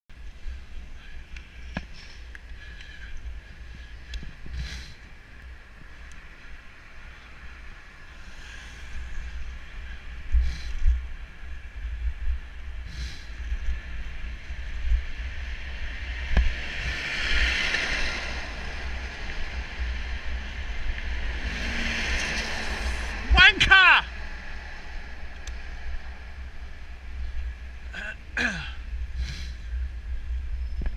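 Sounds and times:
road noise: 0:00.1 - 0:30.9
vehicle tyre hiss: 0:04.5 - 0:05.2, 0:08.1 - 0:11.4, 0:12.8 - 0:13.9, 0:16.6 - 0:23.2, 0:29.2 - 0:29.8.

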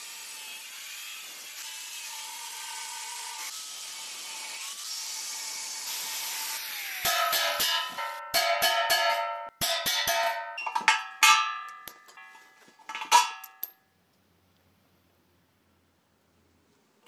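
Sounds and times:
steel tool striking ringing metal: 0:07.1 - 0:13.7.

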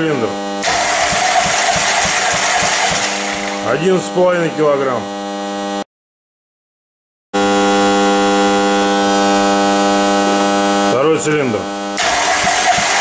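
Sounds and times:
buzzing hum: 0:00.0 - 0:05.9, 0:07.4 - 0:13.0.

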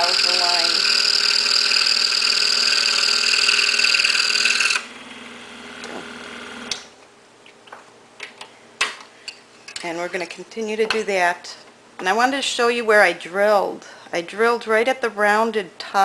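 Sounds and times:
scroll saw buzzing: 0:00.0 - 0:06.8.

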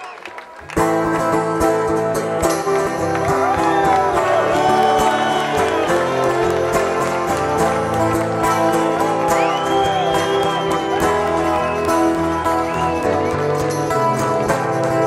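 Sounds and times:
amplified acoustic guitar: 0:00.8 - 0:15.0.

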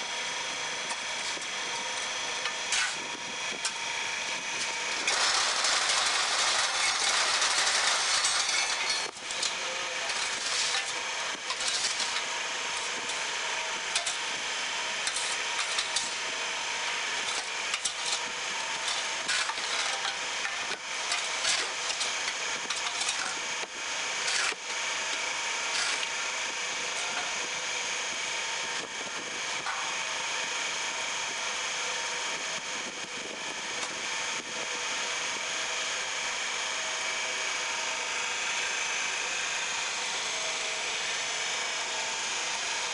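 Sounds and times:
machine motor humming: 0:00.0 - 0:31.7.

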